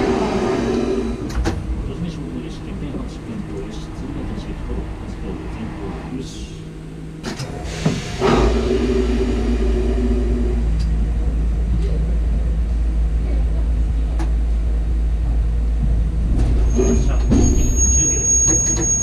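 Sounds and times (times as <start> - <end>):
steady tones: 0.0 - 13.7
train car rumbling on track: 0.0 - 19.0.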